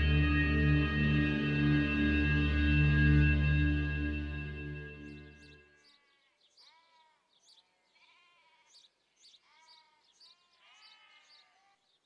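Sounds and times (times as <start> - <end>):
music: 0.0 - 5.7
livestock bleating: 8.0 - 8.8, 9.4 - 11.7.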